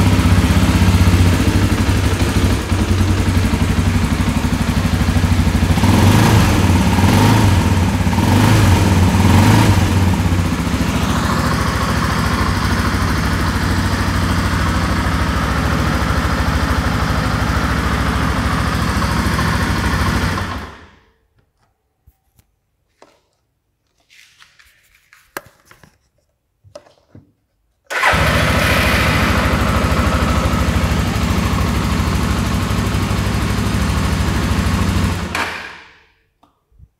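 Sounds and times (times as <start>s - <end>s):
motorcycle engine idling: 0.0s - 21.0s, 27.9s - 35.4s
faint clicks and handling noise: 21.3s - 27.9s.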